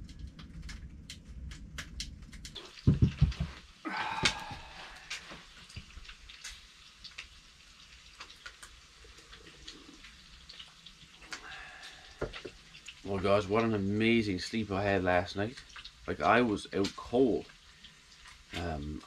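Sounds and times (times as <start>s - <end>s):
faint ticks and taps: 0.0s - 3.6s, 5.1s - 7.4s, 8.0s - 13.8s.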